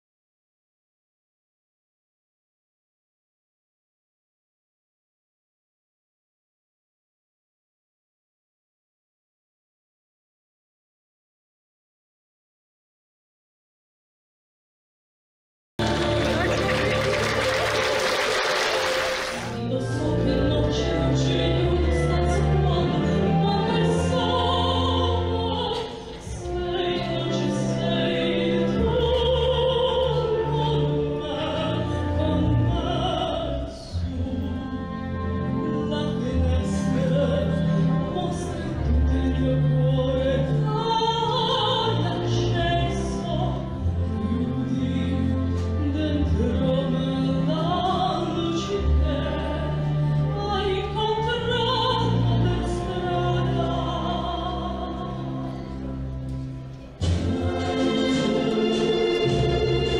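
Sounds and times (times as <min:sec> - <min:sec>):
woman singing operatic song: 0:15.8 - 0:17.6, 0:18.8 - 0:56.0
instrumental accompaniment: 0:52.2 - 0:59.9.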